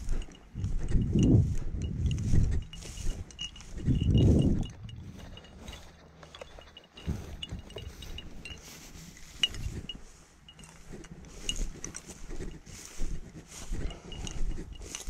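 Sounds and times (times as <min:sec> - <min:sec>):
microphone handling rumble: 0:00.0 - 0:05.8
wind on microphone: 0:00.0 - 0:06.0, 0:06.9 - 0:10.2, 0:10.8 - 0:15.0.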